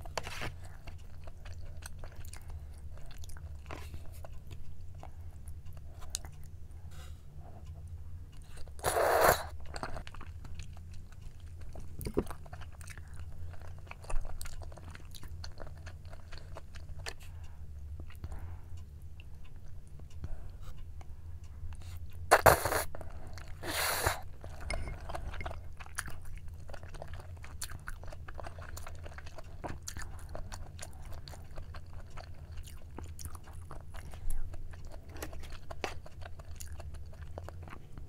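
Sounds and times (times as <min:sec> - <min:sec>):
low steady hum: 0:00.0 - 0:38.0
soft chewing: 0:00.0 - 0:38.0
noodle slurp: 0:08.8 - 0:09.5, 0:22.3 - 0:22.9.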